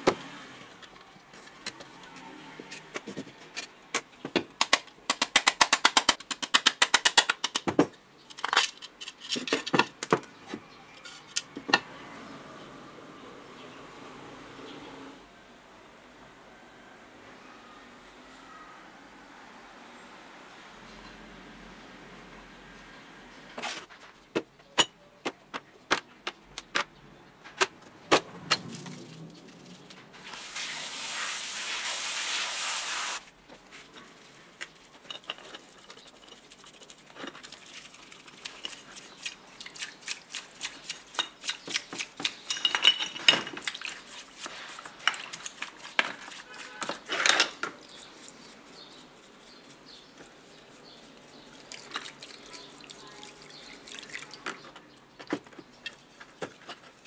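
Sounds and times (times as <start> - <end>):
clicks and knocks of metal parts: 0.8 - 11.8
wet scrubbing: 35.7 - 42.4, 43.6 - 54.4
liquid pouring: 51.6 - 54.4.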